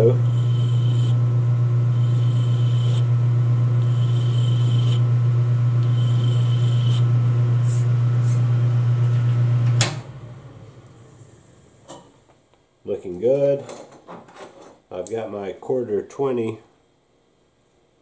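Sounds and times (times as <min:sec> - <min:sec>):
lathe chuck spinning down: 0:00.0 - 0:01.2, 0:01.9 - 0:03.2, 0:03.8 - 0:05.1, 0:05.7 - 0:07.2
metal lathe humming: 0:00.0 - 0:09.7
hand file scraping metal: 0:00.2 - 0:01.2, 0:02.0 - 0:03.1, 0:03.8 - 0:05.0, 0:05.8 - 0:07.1.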